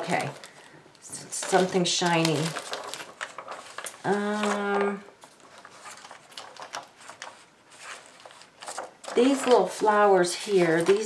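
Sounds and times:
plastic sheet clicks and crinkles: 0.0 - 11.0.

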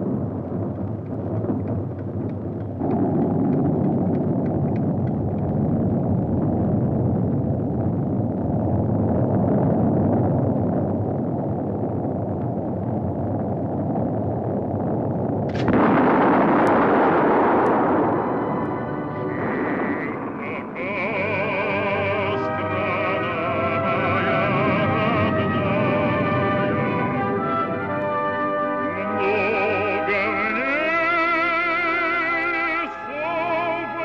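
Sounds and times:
steady low rumbling: 0.0 - 34.0
radio static hiss: 15.5 - 28.0.

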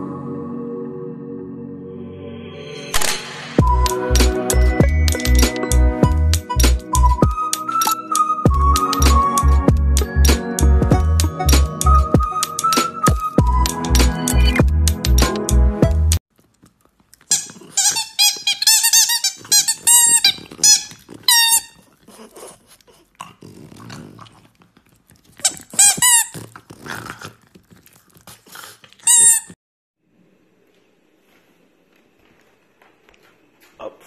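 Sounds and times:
background music: 0.0 - 16.2
dog squealing and whining: 17.2 - 23.0, 25.4 - 26.6, 29.0 - 29.6.

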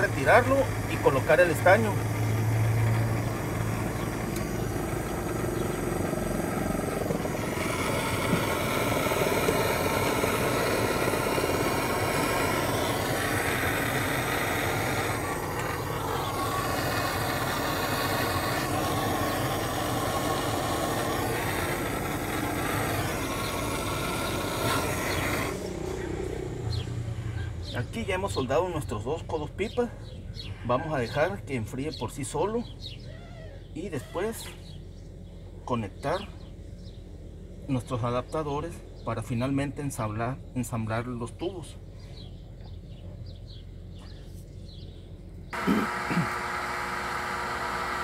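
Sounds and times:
gas torch hissing: 0.0 - 28.0, 45.5 - 48.0.

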